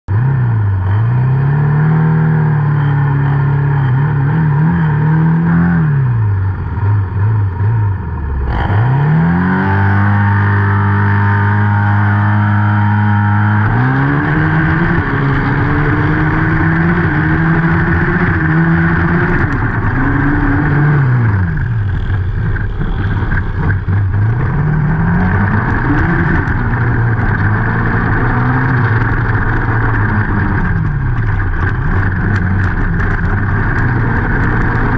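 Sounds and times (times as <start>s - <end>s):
small quad engines revving: 0.1s - 34.9s.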